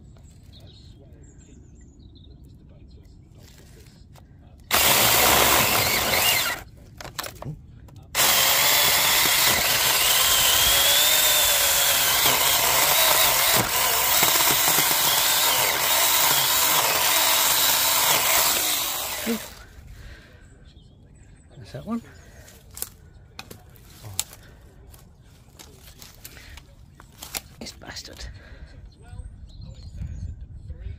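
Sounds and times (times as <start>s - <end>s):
mini chainsaw cutting: 4.7s - 7.4s, 8.1s - 19.7s.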